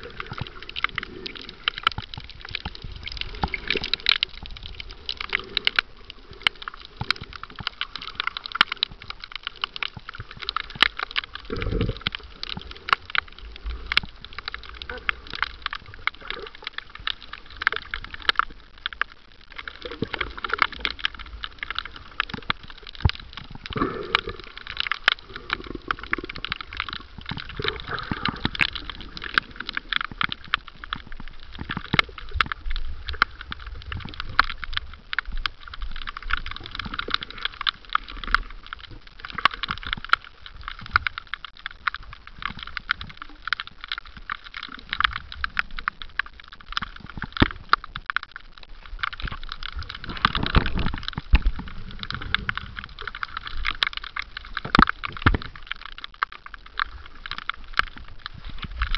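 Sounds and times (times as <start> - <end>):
low water rumble: 0.0 - 58.9
underwater crackle of clicks: 0.0 - 58.9.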